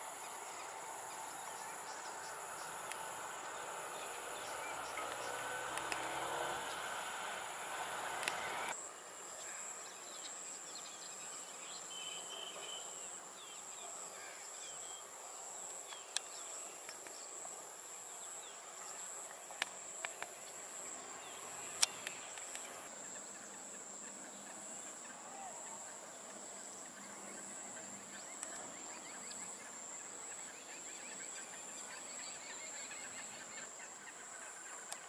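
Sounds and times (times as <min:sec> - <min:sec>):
crickets droning: 0:00.0 - 0:35.0
sharp clicks: 0:08.2 - 0:08.5.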